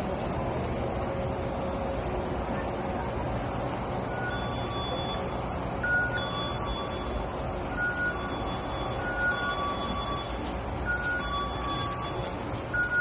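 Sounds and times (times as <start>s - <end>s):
supermarket background din: 0.0s - 13.0s
short electronic beeps: 4.1s - 13.0s.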